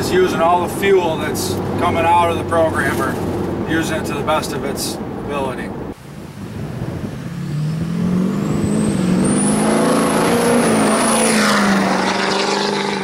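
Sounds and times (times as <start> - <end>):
diesel truck accelerating past: 6.5 - 13.0.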